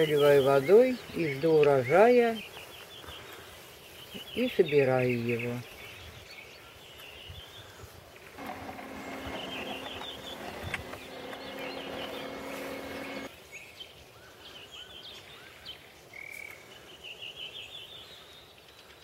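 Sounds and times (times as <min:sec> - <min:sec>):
small birds chirping: 0:00.0 - 0:19.0
food processor motor hum: 0:08.4 - 0:13.3.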